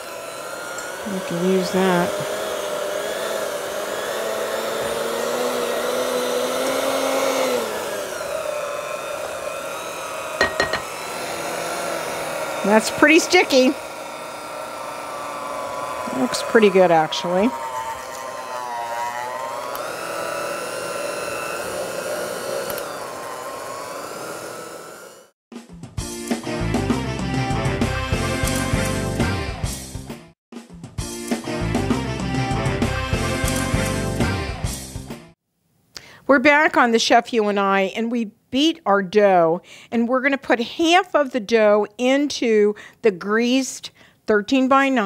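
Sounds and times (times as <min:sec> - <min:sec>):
electric hand mixer running: 0:00.0 - 0:25.4, 0:27.2 - 0:29.4, 0:32.2 - 0:34.4.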